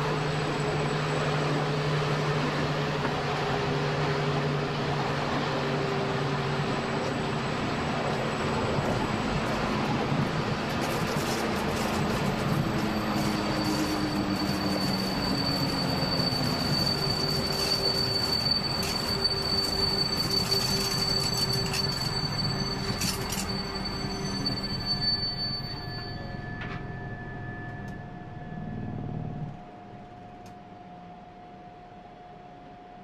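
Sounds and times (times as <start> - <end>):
train rumbling over rails: 0.0 - 31.6
high wheel squeal: 6.4 - 29.5.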